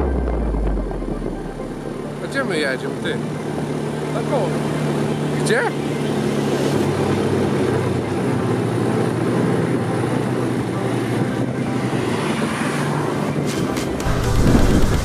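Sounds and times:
quad bike engine running: 0.0 - 12.4, 13.3 - 15.0
wind noise: 13.2 - 15.0.

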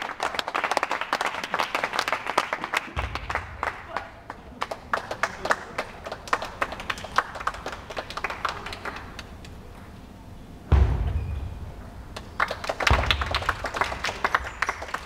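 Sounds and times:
people clapping: 0.0 - 9.7, 12.1 - 15.0
loud low thump: 10.7 - 12.2.

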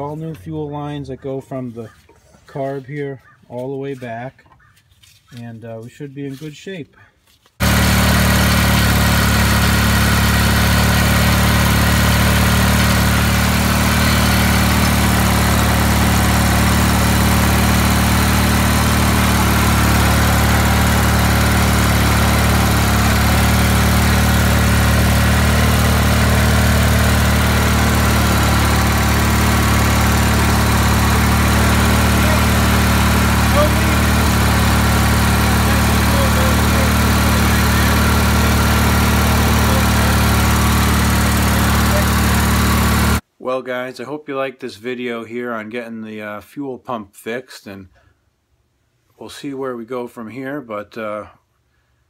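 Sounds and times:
tractor engine idling: 7.6 - 43.2.

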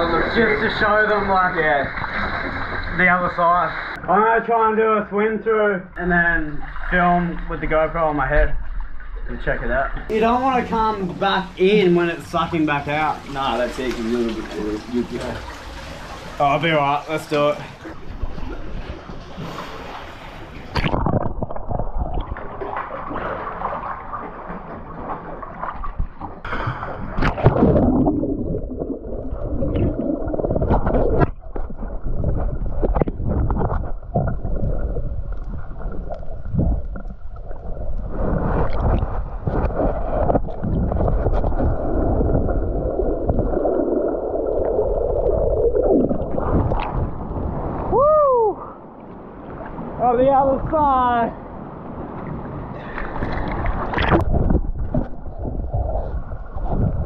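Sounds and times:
muffled underwater rushing: 0.0 - 4.1, 6.0 - 50.0, 51.4 - 57.0
underwater knocks: 25.6 - 37.3.

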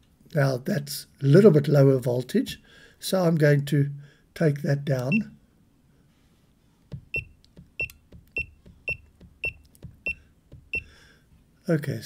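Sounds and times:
short high key beeps: 7.1 - 10.9.

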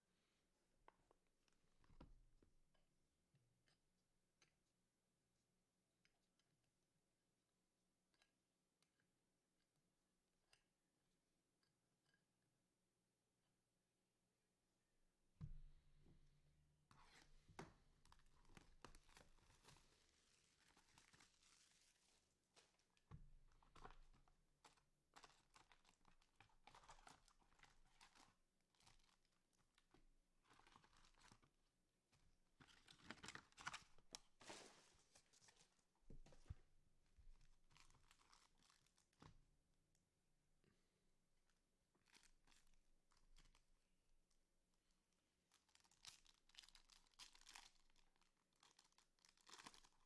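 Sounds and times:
wrappers tearing and crinkling: 19.5 - 22.8.

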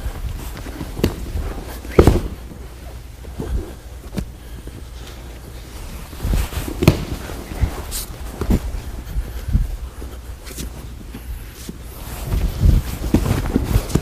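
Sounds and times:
fabric rustling: 0.0 - 14.0
knees shuffling on mat: 0.0 - 14.0
bodies thudding onto mat: 0.5 - 4.4, 6.0 - 9.0, 12.1 - 14.0.

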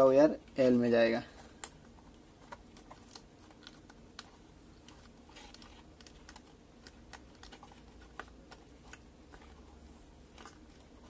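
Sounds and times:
fingers clicking and tapping plastic: 1.6 - 9.6.

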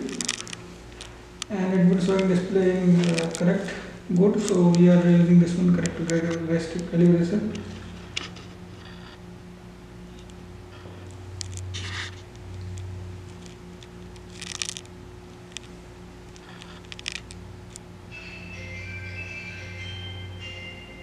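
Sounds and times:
low hum: 0.0 - 21.0
rustles and scrapes: 10.8 - 12.3.

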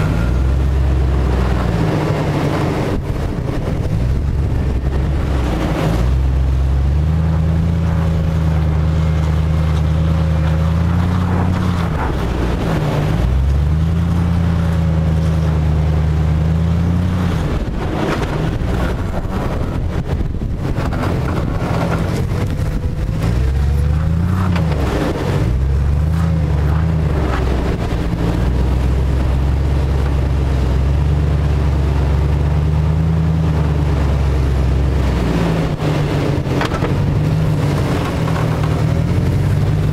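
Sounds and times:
tyres crunching on gravel: 0.0 - 31.6
engine working under load: 0.0 - 39.9.

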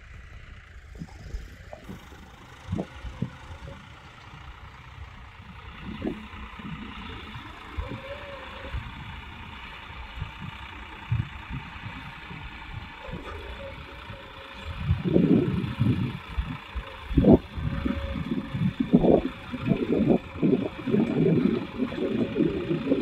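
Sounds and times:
tractor diesel engine under load: 0.0 - 23.0.

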